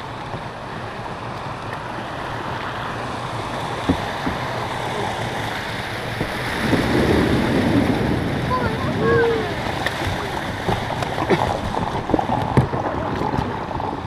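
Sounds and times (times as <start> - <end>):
water rushing through weir: 0.0 - 14.0
light knocks: 3.8 - 4.6.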